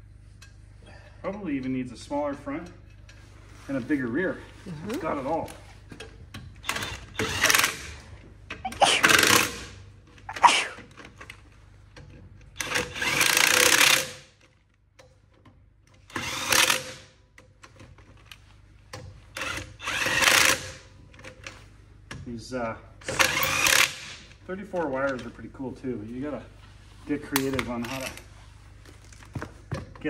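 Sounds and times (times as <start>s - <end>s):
cordless drill spinning lug nuts: 6.6s - 8.0s, 8.8s - 10.8s, 12.6s - 14.4s, 16.1s - 17.1s, 19.4s - 20.8s, 23.1s - 24.2s.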